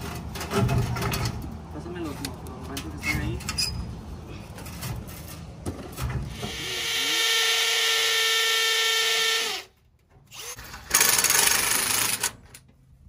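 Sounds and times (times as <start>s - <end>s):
cordless drill driving screw: 6.3s - 9.7s, 10.3s - 12.3s.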